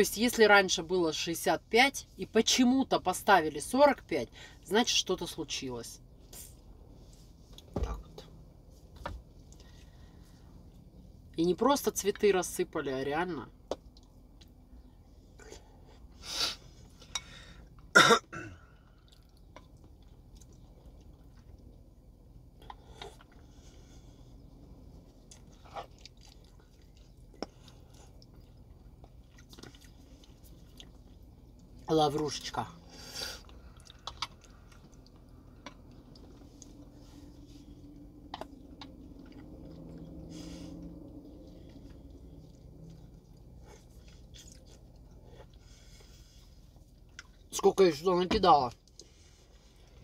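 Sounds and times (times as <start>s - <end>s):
faint low hum: 0.0s - 50.0s
woman coughing: 18.0s - 18.6s
person chewing food: 18.6s - 31.9s, 33.1s - 47.5s.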